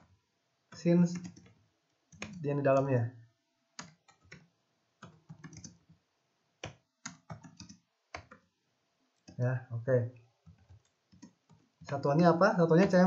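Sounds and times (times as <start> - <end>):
computer keyboard typing: 0.7 - 3.0, 3.8 - 6.0, 6.6 - 8.5, 10.4 - 13.0.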